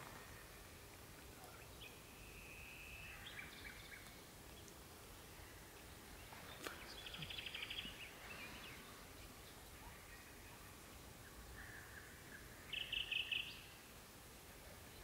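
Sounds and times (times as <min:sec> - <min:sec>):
nightingale singing: 0:01.4 - 0:04.8, 0:05.7 - 0:13.8.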